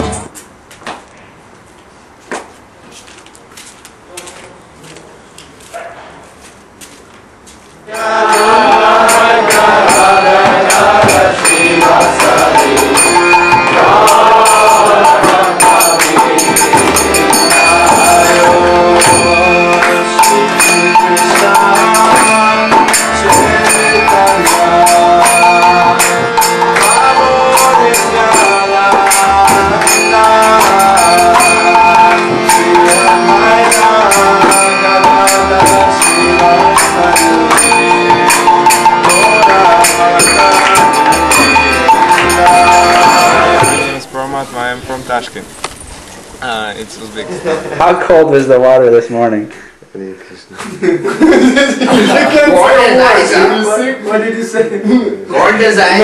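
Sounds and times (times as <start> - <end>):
voices chanting devotional music: 7.8 - 48.9, 51.5 - 54.4
jingling hand percussion: 7.9 - 47.4.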